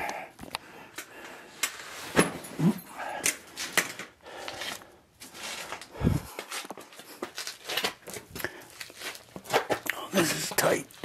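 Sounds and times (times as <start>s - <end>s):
person grunting: 2.6s - 3.1s.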